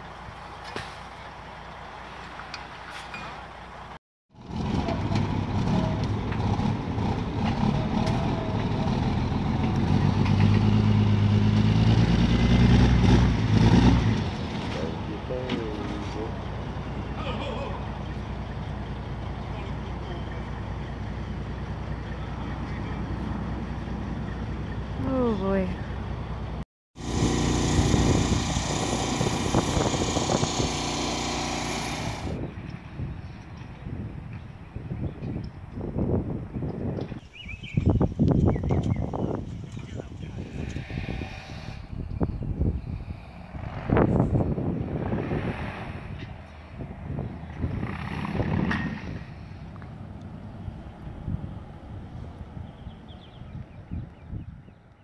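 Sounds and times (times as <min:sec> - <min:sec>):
diesel truck engine under load: 0:00.0 - 0:33.0
outdoor background: 0:00.0 - 0:55.0
truck engine idling: 0:14.8 - 0:25.0.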